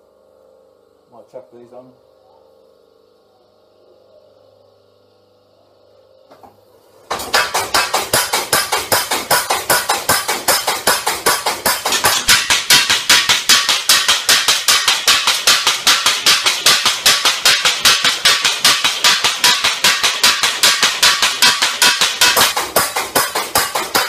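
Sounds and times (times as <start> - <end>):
power hammer metal clanks: 7.1 - 24.0.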